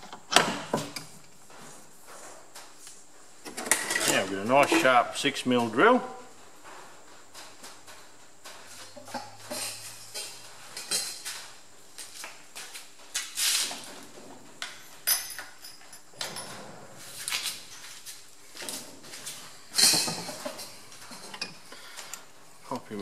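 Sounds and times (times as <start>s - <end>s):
metal tools clinking: 8.8s - 11.4s, 14.8s - 16.7s, 19.7s - 21.6s.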